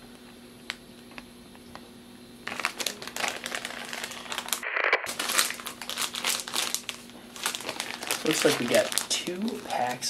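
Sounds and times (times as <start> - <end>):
plastic packages crinkling: 2.4 - 10.0.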